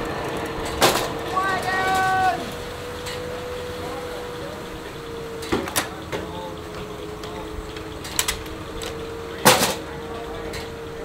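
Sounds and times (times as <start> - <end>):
sawmill humming: 0.0 - 11.0
metal clanks and knocks: 5.4 - 10.8.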